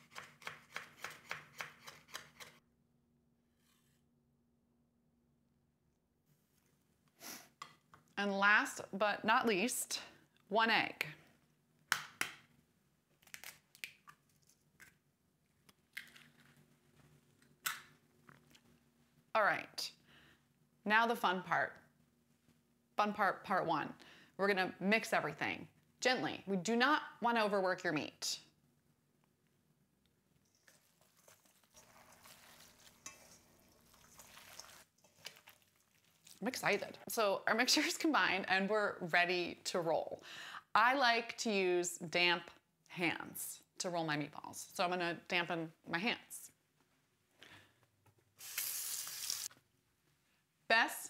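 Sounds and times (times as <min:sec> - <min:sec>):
eggshell crackling: 0:30.4 - 0:36.8
hands kneading wet meat mixture: 0:30.6 - 0:36.5.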